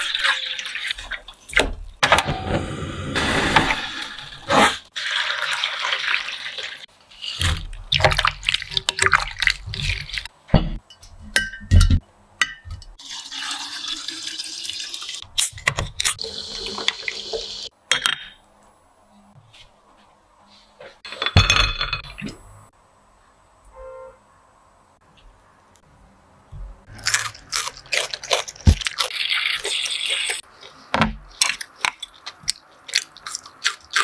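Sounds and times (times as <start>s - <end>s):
liquid pouring and splashing: 4.9s - 6.9s, 7.5s - 10.3s, 13.0s - 15.2s, 28.5s - 30.4s
kitchenware and glass clinking: 10.5s - 13.0s, 21.0s - 22.4s.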